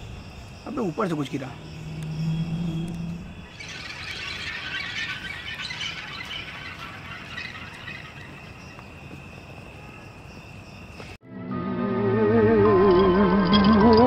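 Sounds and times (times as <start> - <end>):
night insects trilling: 0.0 - 11.2
high-pitched squeals and chirps: 0.7 - 9.0, 11.5 - 14.0.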